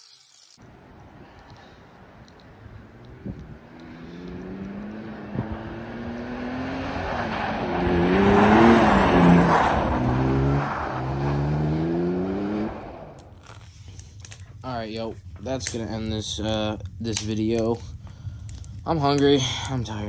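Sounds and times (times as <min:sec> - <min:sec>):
loud pickup truck accelerating past: 0:00.6 - 0:13.3.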